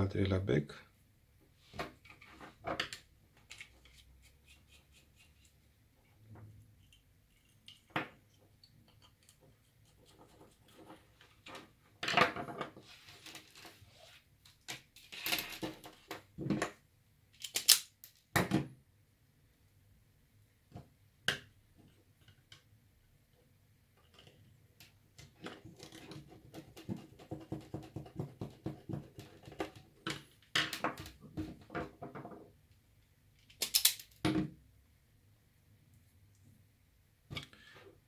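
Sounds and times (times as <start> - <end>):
hands handling wires and tools: 1.8 - 5.6, 17.3 - 18.3, 33.4 - 34.2
sharp snipping clicks: 33.5 - 34.0.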